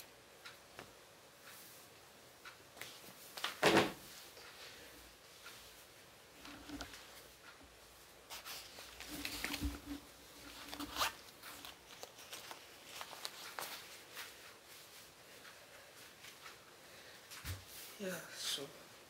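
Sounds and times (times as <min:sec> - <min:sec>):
fabric rustling: 0:08.2 - 0:16.7.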